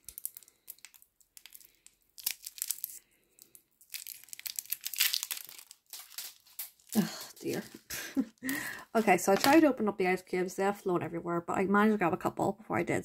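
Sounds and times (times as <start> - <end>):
plastic packet crinkling: 0.0 - 7.9.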